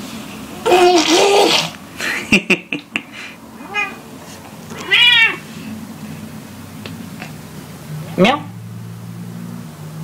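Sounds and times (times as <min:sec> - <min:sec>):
baby laughing: 0:00.6 - 0:01.7
cat meowing: 0:03.6 - 0:04.0, 0:04.7 - 0:05.4.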